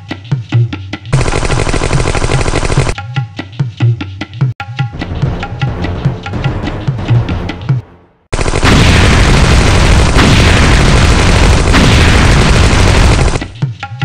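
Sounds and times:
drum music: 2.3s - 8.1s, 13.0s - 14.0s
loud explosion rumble: 8.6s - 13.6s.

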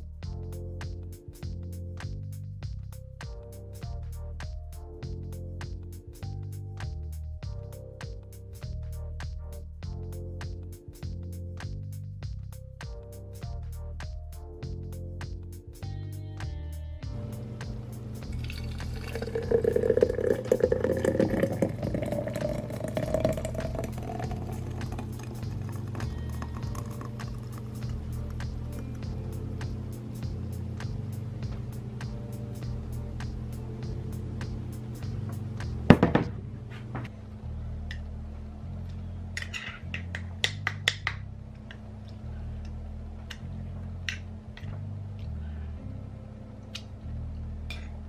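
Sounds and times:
juice pouring into a glass jar: 18.3s - 28.7s.

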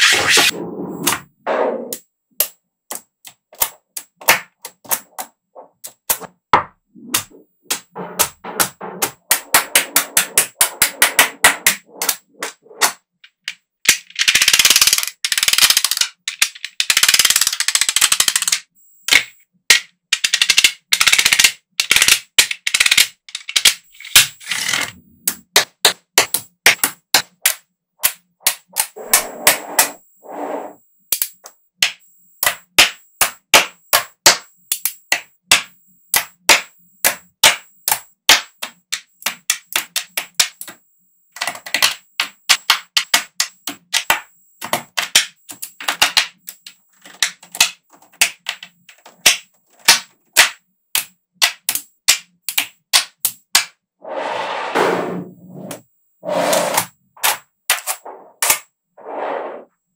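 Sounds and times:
magnetic balls clicking together: 7.0s - 30.0s, 31.1s - 53.7s.

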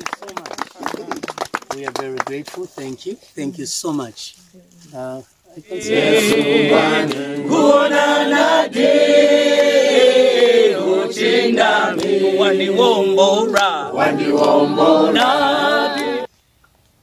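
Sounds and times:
men singing unaccompanied: 5.6s - 16.3s.

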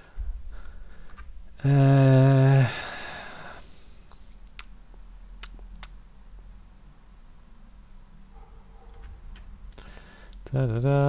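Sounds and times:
man humming: 1.6s - 3.6s.

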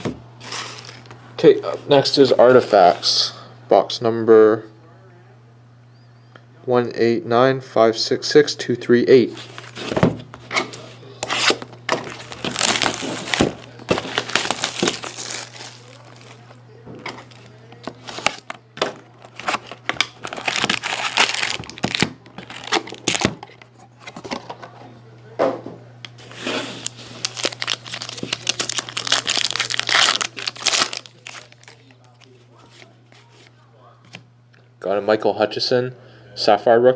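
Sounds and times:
steady low hum: 0.0s - 36.9s
card pack wrappers crinkling and tearing: 0.4s - 1.1s, 11.2s - 23.6s, 26.2s - 33.2s.

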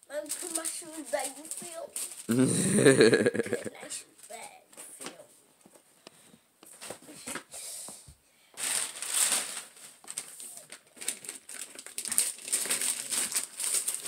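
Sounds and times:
wrapping paper crinkling: 0.0s - 4.4s, 8.6s - 14.0s.

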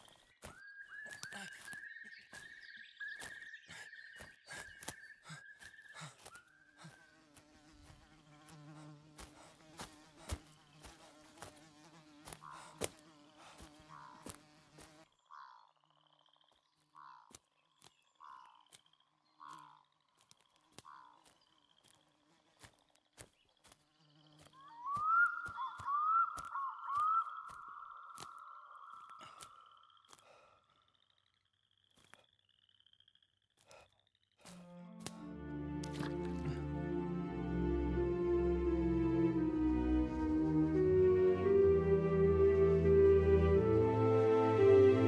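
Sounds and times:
flies buzzing: 4.2s - 15.2s, 19.4s - 30.2s, 34.4s - 45.0s.

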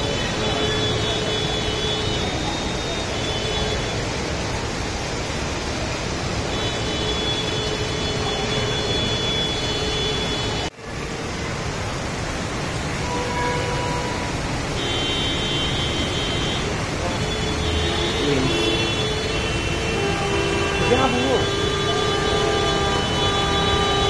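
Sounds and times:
river flowing: 0.0s - 24.0s
traffic rushing: 0.0s - 24.0s.

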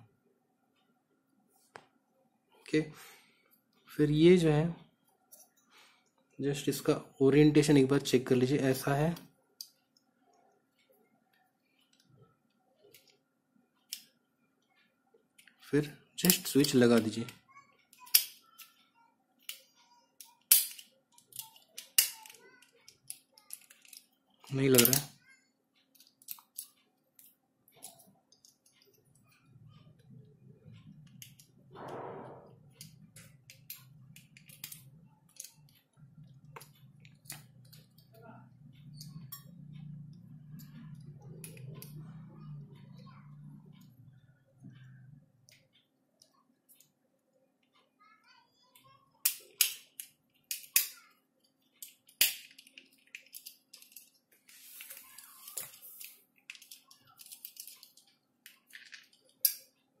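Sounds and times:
scraping rustle: 54.4s - 56.2s.

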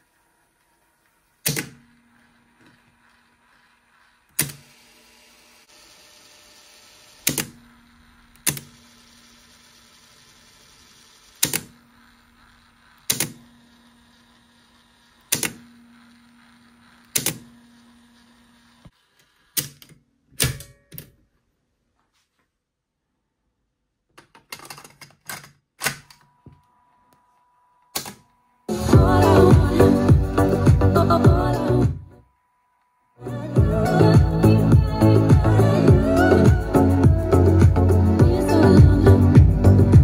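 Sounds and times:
sharp mechanical clicks: 1.4s - 1.8s, 4.3s - 4.7s, 7.2s - 7.7s, 8.3s - 9.0s, 10.9s - 14.4s, 15.2s - 15.8s, 16.6s - 17.8s.

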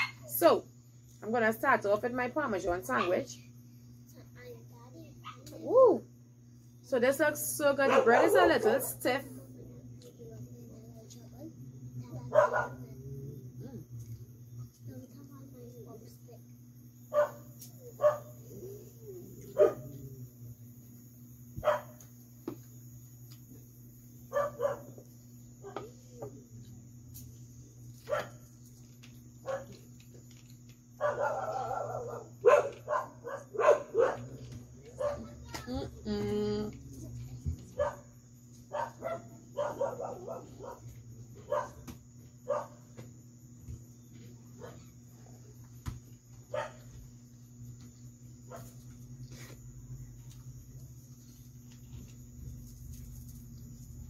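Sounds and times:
steady low hum: 0.0s - 54.0s
dog barking: 5.2s - 5.4s, 7.8s - 8.7s, 12.2s - 13.0s, 17.1s - 18.8s, 19.4s - 20.1s, 21.6s - 22.0s, 24.3s - 25.0s, 28.0s - 28.4s, 29.4s - 29.8s, 31.0s - 35.4s, 37.7s - 38.1s, 38.7s - 42.9s, 44.5s - 45.0s, 46.5s - 47.0s, 48.5s - 48.8s.

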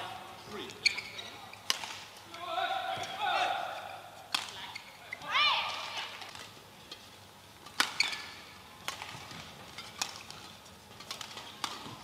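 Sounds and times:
rackets hitting shuttlecock: 1.6s - 2.2s, 4.3s - 4.8s, 7.6s - 12.0s.

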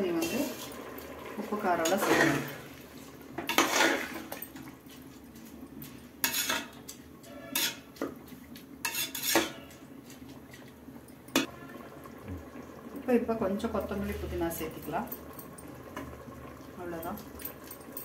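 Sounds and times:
metal spoon scraping metal pot: 1.8s - 2.7s, 3.5s - 4.4s, 6.2s - 7.9s, 8.8s - 9.8s.

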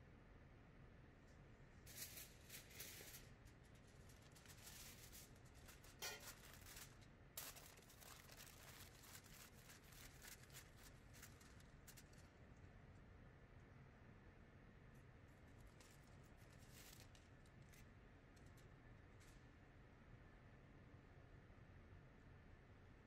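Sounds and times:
aluminium foil crinkling: 1.8s - 12.7s, 15.3s - 19.4s.

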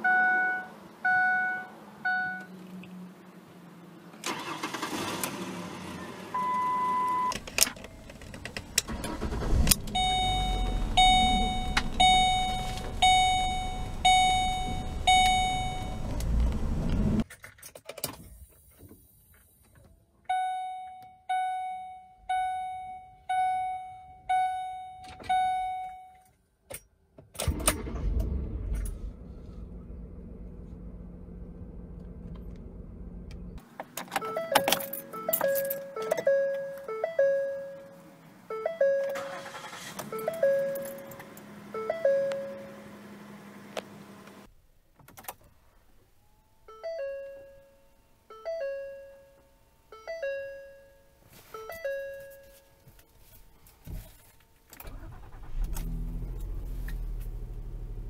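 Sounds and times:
engine starting: 4.2s - 6.1s, 8.8s - 10.3s, 27.4s - 29.6s, 39.2s - 40.2s, 54.8s - 57.9s
engine running: 8.1s - 17.2s, 27.5s - 33.6s
bell-like warning chimes: 10.0s - 16.0s, 20.3s - 26.2s.

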